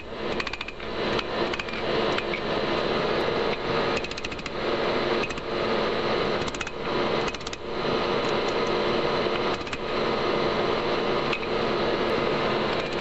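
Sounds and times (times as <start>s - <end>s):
steady mechanical roar: 0.0s - 13.0s.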